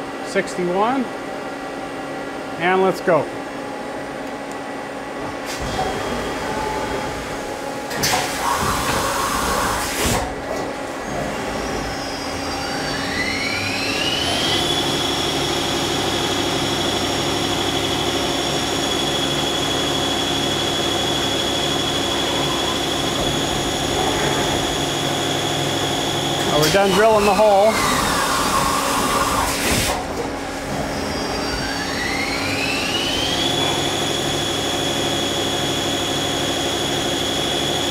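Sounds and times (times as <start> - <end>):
lathe spindle whine: 11.4 - 29.5, 30.7 - 37.9.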